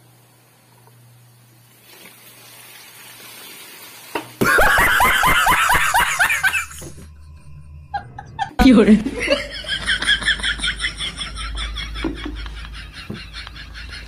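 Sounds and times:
man laughing in rapid cackle: 0:04.4 - 0:06.9, 0:09.2 - 0:14.0.

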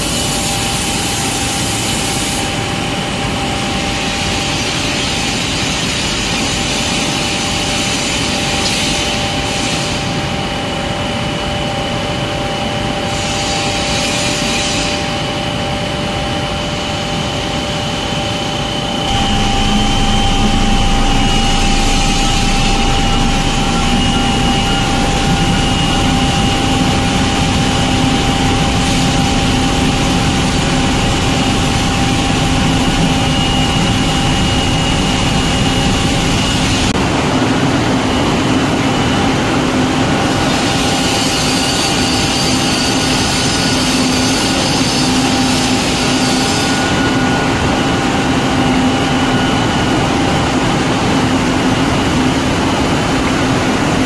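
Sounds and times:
machine hum with whining tones: 0:00.0 - 0:54.0
lower machine hum: 0:18.9 - 0:37.3.

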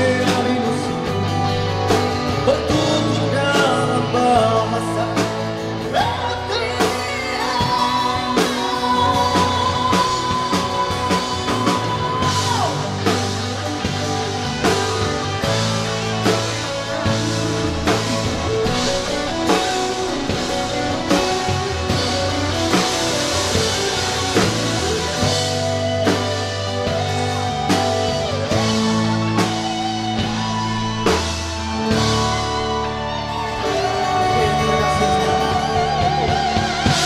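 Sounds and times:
man singing: 0:00.0 - 0:13.6, 0:33.9 - 0:37.0
rock band playing: 0:00.0 - 0:37.0.

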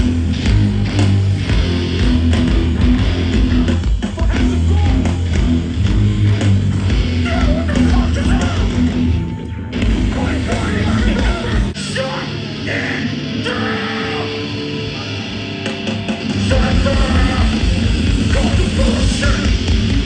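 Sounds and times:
hardcore band playing: 0:00.0 - 0:20.0
yelled vocal: 0:09.8 - 0:15.6, 0:16.3 - 0:20.0.

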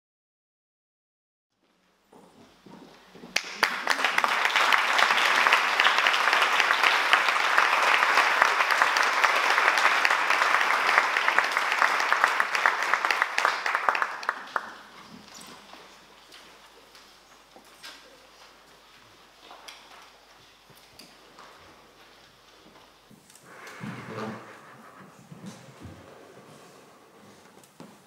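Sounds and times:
audience applauding: 0:03.3 - 0:15.5.

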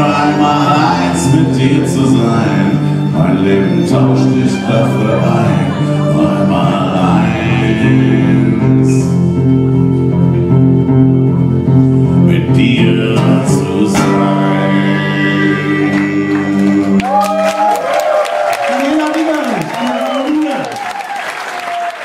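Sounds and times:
acoustic guitar song: 0:00.0 - 0:17.2
audience applause: 0:15.9 - 0:22.0.

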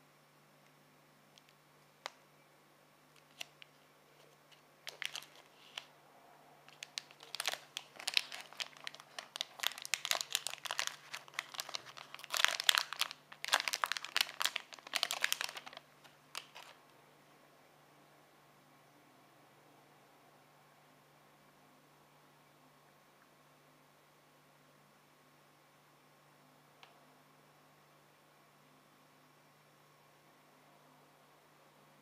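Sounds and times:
plastic wrapper crinkling and tearing: 0:03.2 - 0:05.9, 0:06.7 - 0:16.8.

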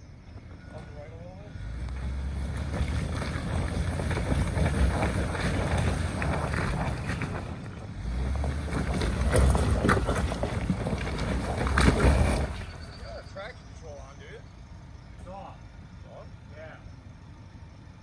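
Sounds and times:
tyres crunching on stones: 0:01.8 - 0:13.3
rocks clattering: 0:02.5 - 0:12.8.

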